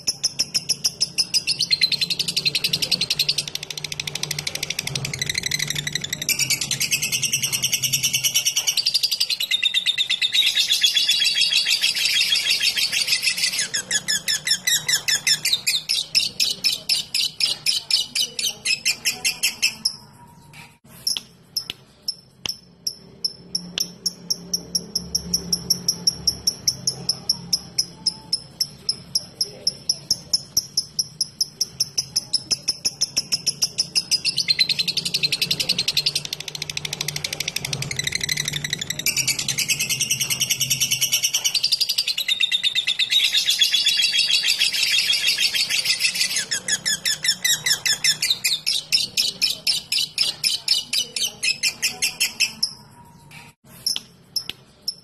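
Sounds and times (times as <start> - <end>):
lovebird trilling and ticking: 21.0 - 52.8.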